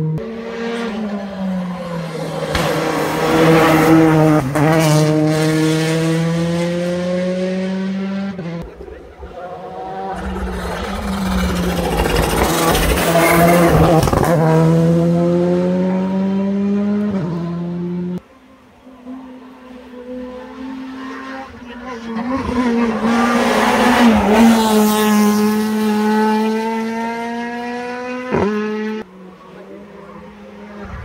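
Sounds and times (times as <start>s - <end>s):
rally car engines accelerating: 0.0s - 31.0s.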